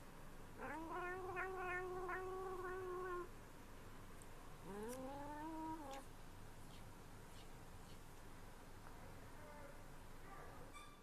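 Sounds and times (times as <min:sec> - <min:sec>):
cat meowing: 0:00.6 - 0:03.3, 0:04.6 - 0:06.0.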